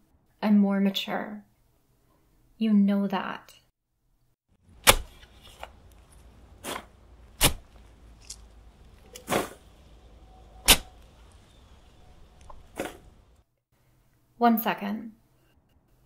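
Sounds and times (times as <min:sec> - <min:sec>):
low steady hum: 0:04.6 - 0:13.4
shovel digging into soil: 0:04.7 - 0:09.7, 0:10.6 - 0:11.0, 0:12.6 - 0:13.1.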